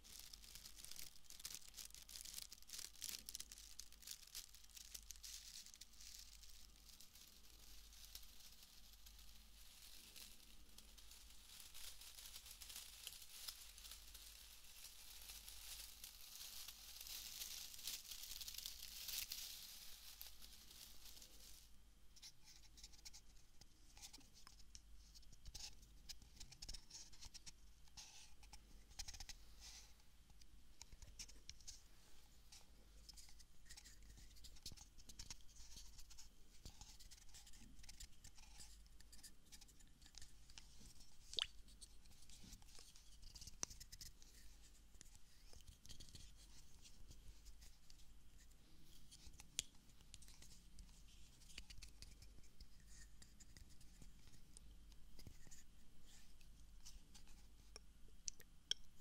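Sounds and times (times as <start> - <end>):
soft rustling hiss: 0.0 - 59.0
light taps clicks and scratches: 32.5 - 59.0.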